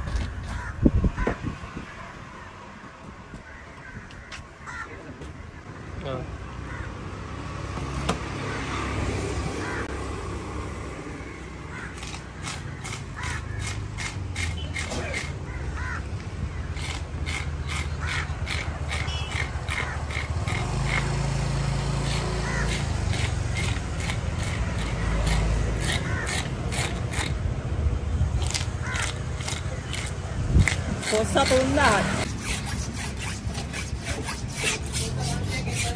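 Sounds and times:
fish scaler rasping scales: 16.7s - 21.3s, 22.0s - 27.4s, 28.4s - 35.9s.

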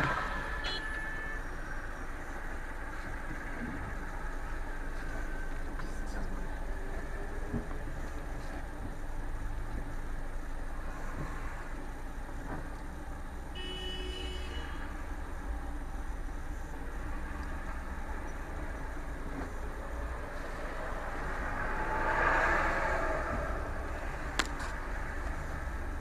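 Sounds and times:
car horn toot: 0.0s - 1.5s, 13.5s - 15.0s
street traffic rumble: 0.0s - 26.0s.

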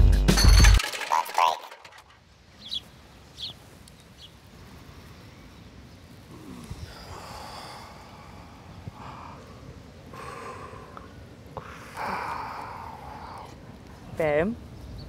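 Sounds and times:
small bird chirps: 2.6s - 4.4s.

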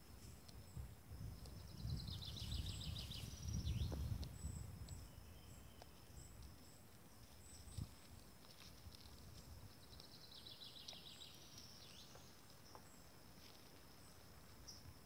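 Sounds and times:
insects humming: 0.0s - 15.0s
bird chirping: 1.4s - 8.1s, 9.4s - 13.2s.

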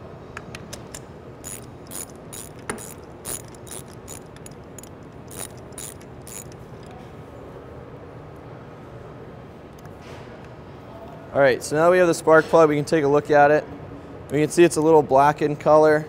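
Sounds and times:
hand ratchet clicking: 0.5s - 7.0s.

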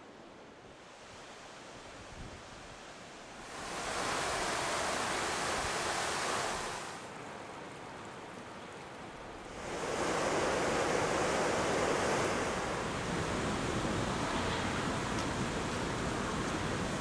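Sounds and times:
outdoor hiss: 0.0s - 7.2s
fast-flowing river rushing: 3.4s - 7.5s.

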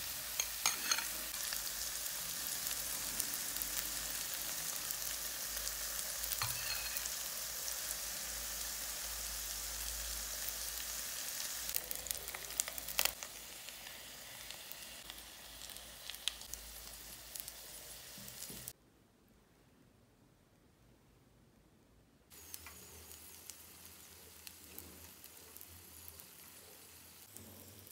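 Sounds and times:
potato frying in a pan: 0.0s - 18.8s, 22.3s - 27.9s.

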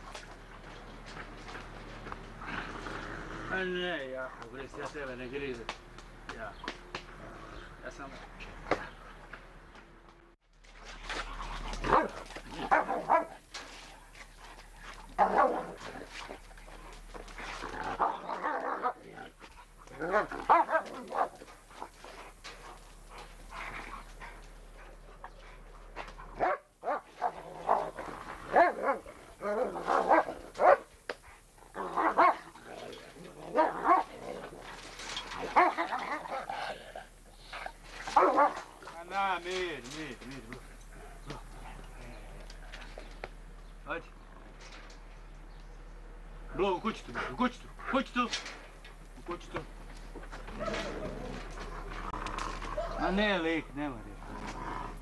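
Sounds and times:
dog and wolf scuffling: 0.0s - 55.0s.

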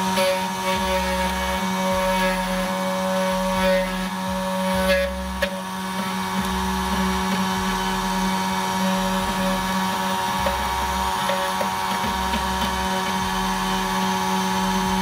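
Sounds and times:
cutter scraping metal: 0.0s - 15.0s
key cutter motor humming: 0.0s - 15.0s.

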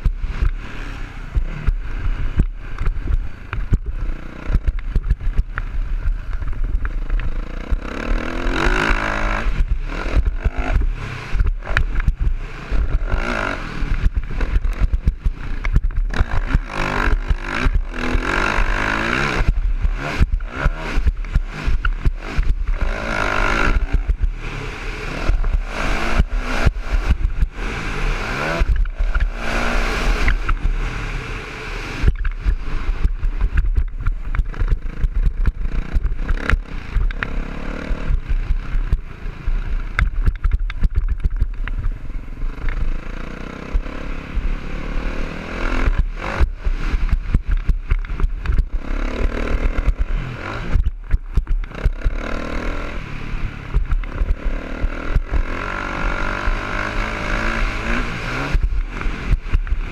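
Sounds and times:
dirt bike engine revving: 0.0s - 41.7s, 42.3s - 59.9s.

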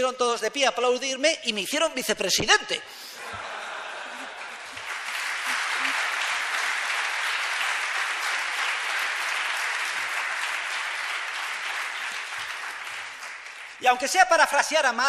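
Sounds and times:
audience applauding: 3.2s - 15.0s.

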